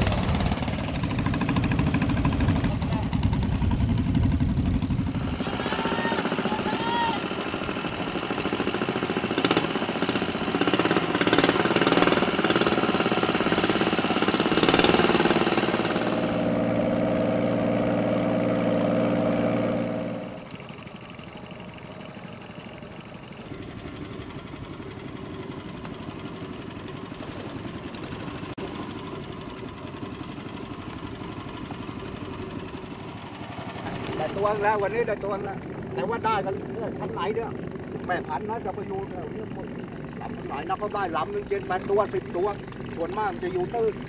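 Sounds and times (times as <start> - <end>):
boat engine knocking: 0.0 - 16.4, 20.6 - 44.0.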